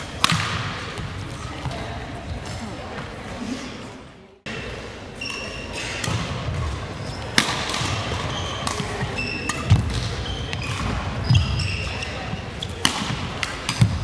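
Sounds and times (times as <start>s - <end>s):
rackets hitting shuttlecock: 0.0s - 1.8s, 5.2s - 14.0s.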